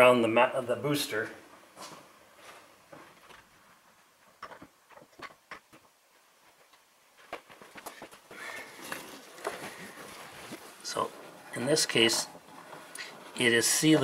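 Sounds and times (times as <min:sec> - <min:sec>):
rustling of shop rag: 0:07.5 - 0:14.0.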